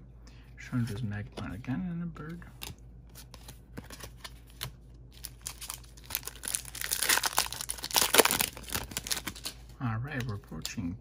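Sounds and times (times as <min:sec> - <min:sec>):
foil wrapper crinkling: 0:05.2 - 0:09.6.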